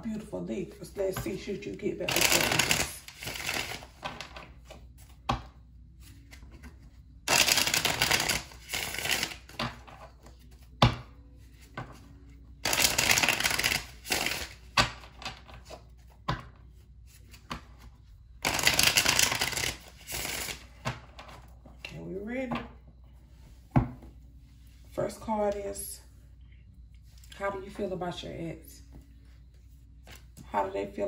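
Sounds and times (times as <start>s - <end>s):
cards being shuffled: 2.1s - 5.3s, 6.0s - 10.8s, 12.6s - 16.2s, 17.1s - 21.5s.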